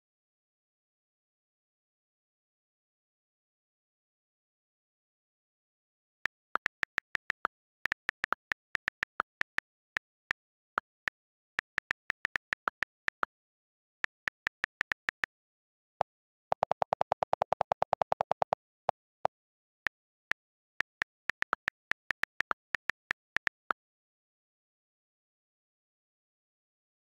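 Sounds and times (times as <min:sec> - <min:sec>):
on-screen keyboard clicks: 0:06.3 - 0:13.3, 0:14.0 - 0:15.3, 0:16.0 - 0:23.8.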